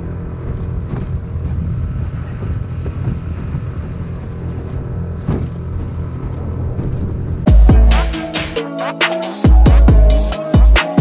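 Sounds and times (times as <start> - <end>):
wind noise on microphone: 0.0 - 7.5
outboard motor running: 0.0 - 7.9.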